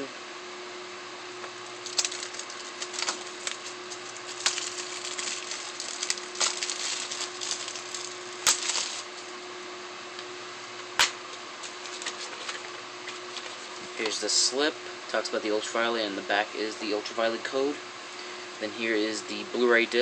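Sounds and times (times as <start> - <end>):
cellophane wrap crinkling: 1.6 - 9.3.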